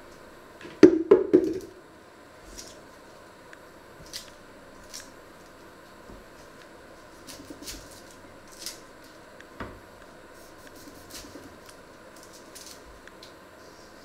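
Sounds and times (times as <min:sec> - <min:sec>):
onion skins crackling and tearing: 0:02.4 - 0:03.2, 0:04.0 - 0:09.5, 0:10.4 - 0:13.4.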